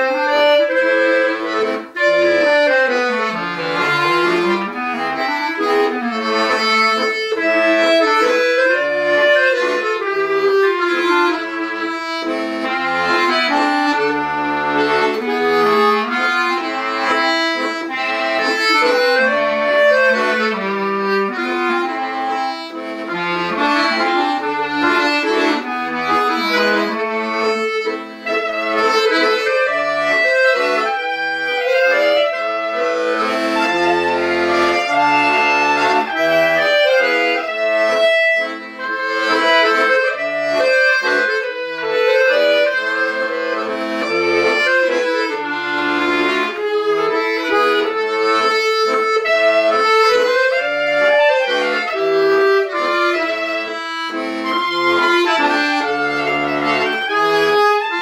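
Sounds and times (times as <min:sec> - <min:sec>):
button accordion: 0:00.0 - 0:58.0
clarinet: 0:00.0 - 0:58.0.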